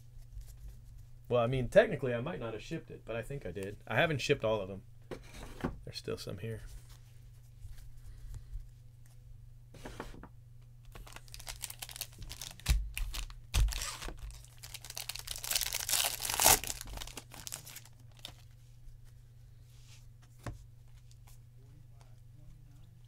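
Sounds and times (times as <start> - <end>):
foil wrapper crinkling and tearing: 10.9 - 18.6.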